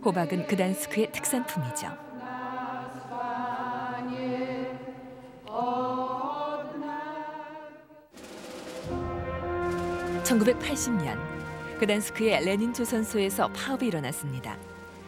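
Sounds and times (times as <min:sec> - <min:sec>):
choral chant: 0:00.0 - 0:08.1.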